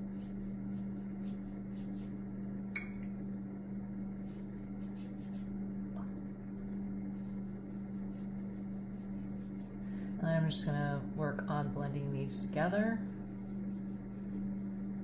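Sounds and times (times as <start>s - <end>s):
brush swishing on paper: 0.0s - 2.2s, 4.1s - 5.6s, 7.1s - 10.7s, 12.2s - 15.0s
steady low hum: 0.0s - 15.0s.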